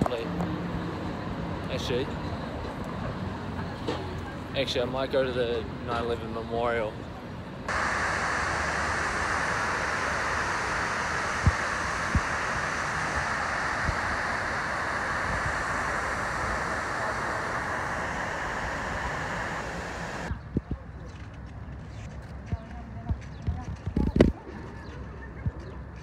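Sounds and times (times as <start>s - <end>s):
waterfall rushing: 7.7s - 20.3s.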